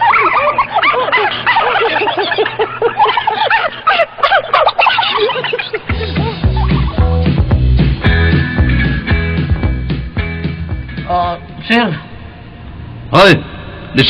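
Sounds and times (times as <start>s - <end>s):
overlapping high cackling calls: 0.0s - 7.3s
music with heavy bass line: 5.9s - 11.2s.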